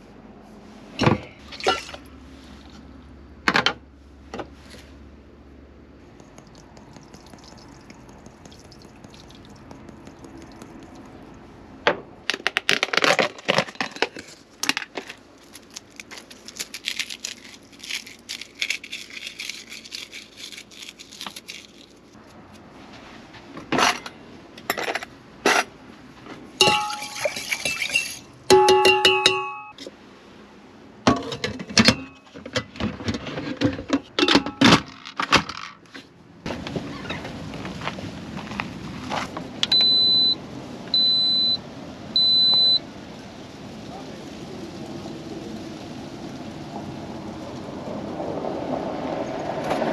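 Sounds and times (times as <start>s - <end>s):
glass jar clinking on metal pot: 26.6s - 29.7s.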